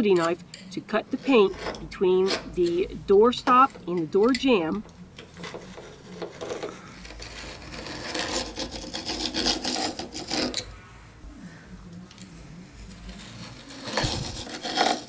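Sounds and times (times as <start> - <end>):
knife blade scraping paint: 5.2 - 10.7, 13.1 - 15.0.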